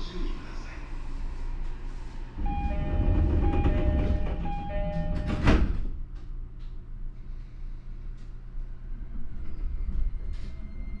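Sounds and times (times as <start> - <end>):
sliding doors rumbling shut: 2.4 - 6.0
two-note door chime: 2.5 - 5.6
door closing thud: 3.2 - 5.9.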